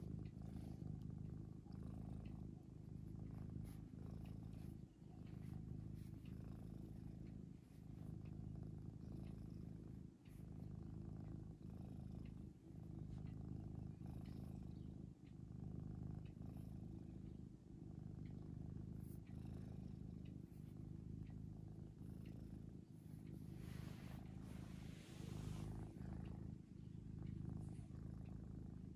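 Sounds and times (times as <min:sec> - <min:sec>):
cat purring: 0:00.0 - 0:28.9
soft rustle: 0:22.6 - 0:28.0.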